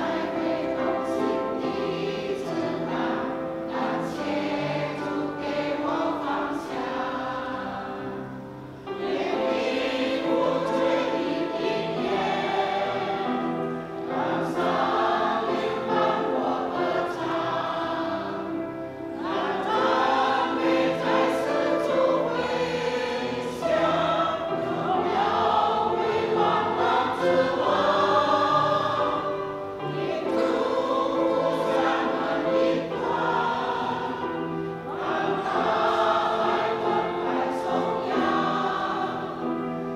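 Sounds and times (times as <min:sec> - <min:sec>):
choir singing a hymn: 0:00.0 - 0:39.9.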